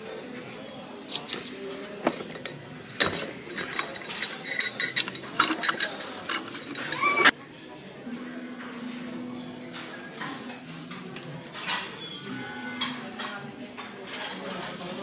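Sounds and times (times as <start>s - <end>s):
tableware clinking: 2.0s - 7.3s, 11.5s - 14.9s.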